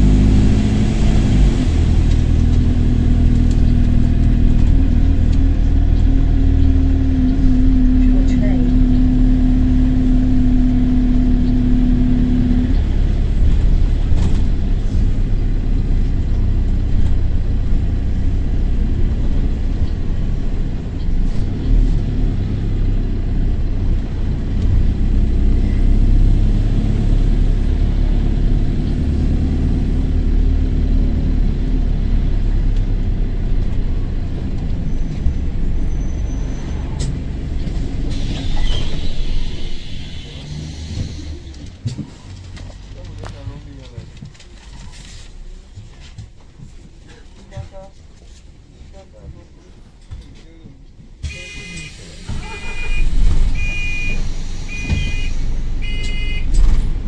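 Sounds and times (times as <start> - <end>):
engine drone: 0.0 - 44.0
bus engine rumbling: 0.0 - 57.0.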